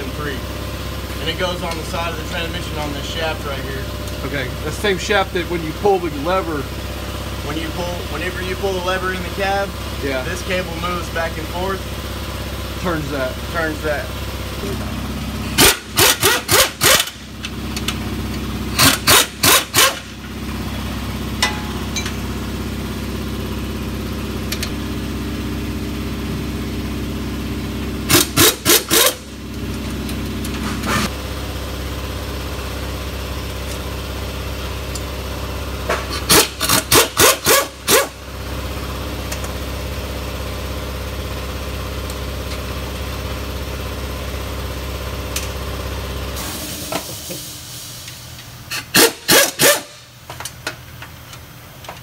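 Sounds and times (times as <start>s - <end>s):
shop hum: 0.0s - 52.0s
pneumatic wrench bursts: 15.6s - 17.2s, 18.7s - 20.1s, 28.1s - 29.2s, 36.2s - 38.1s, 48.7s - 50.1s.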